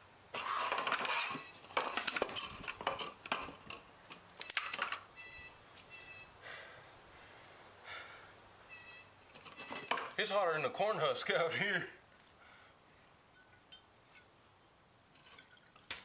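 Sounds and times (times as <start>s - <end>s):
hard objects clattering: 0.3s - 5.1s.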